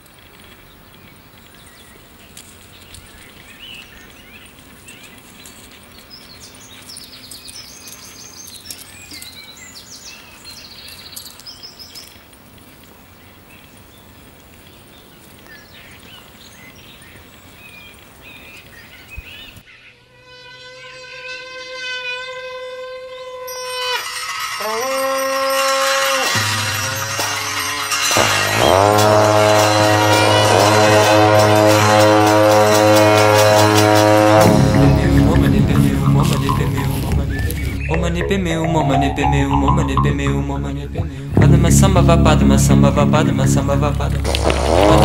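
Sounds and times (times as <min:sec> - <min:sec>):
birds chirping: 0:00.3 - 0:12.3, 0:35.4 - 0:41.4
held musical tone: 0:31.6 - 0:44.3.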